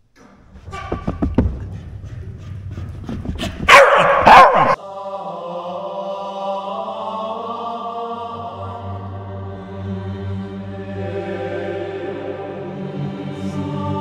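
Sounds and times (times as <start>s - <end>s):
dog barking: 3.7s - 4.8s
slow chant-like music: 4.5s - 14.0s.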